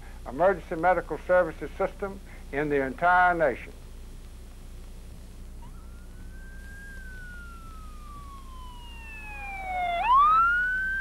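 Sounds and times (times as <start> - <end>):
ambulance siren wailing: 5.6 - 11.0.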